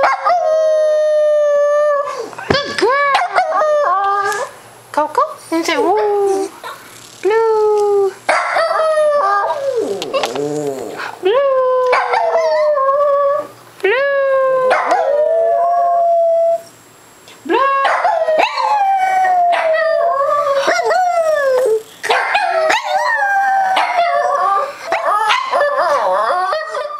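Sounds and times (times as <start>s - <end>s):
dog howling: 8.4s - 13.5s, 14.1s - 16.7s, 17.6s - 26.9s.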